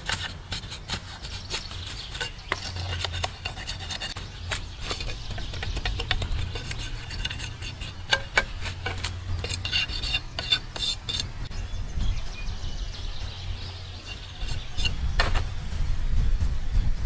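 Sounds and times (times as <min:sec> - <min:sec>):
knife scraping bamboo: 0:00.0 - 0:11.5, 0:14.0 - 0:15.0.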